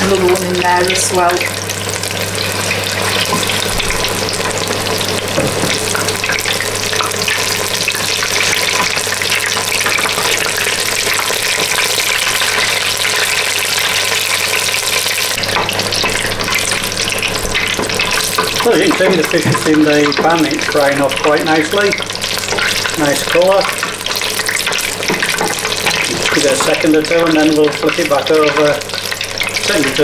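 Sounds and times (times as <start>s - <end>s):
fish deep-frying in oil: 0.0s - 30.0s.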